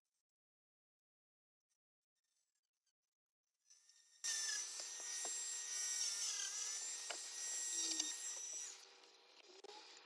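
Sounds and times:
rotary tool whining: 0:03.6 - 0:10.0.

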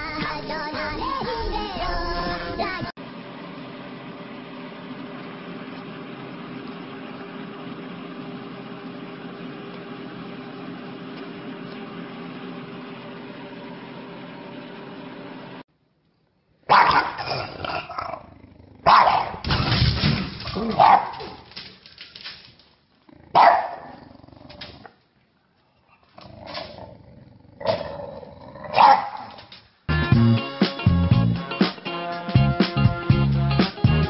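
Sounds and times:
dog barking: 0:16.7 - 0:17.5, 0:18.8 - 0:19.4, 0:20.7 - 0:21.4, 0:23.3 - 0:24.0, 0:28.7 - 0:29.3.

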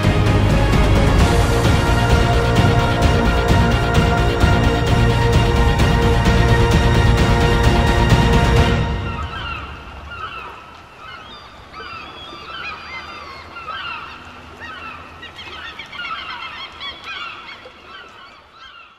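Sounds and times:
flock of birds calling: 0:08.6 - 0:18.9.

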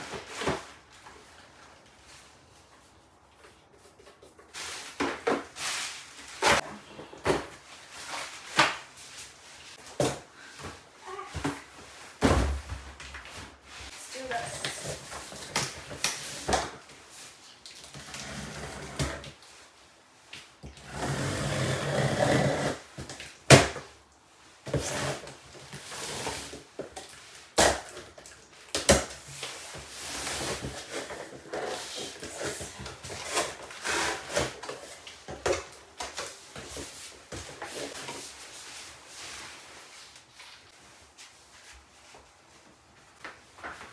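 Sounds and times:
cardboard rustling and scraping: 0:29.2 - 0:41.9.

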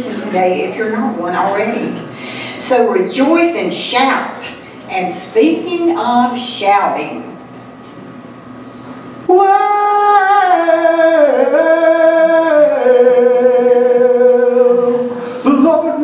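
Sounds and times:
person singing a long note: 0:09.3 - 0:16.0.

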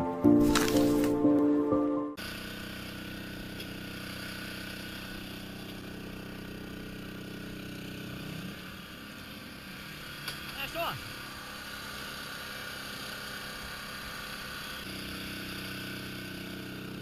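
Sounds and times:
music jingle: 0:00.0 - 0:02.2
small engine running: 0:02.2 - 0:17.0.

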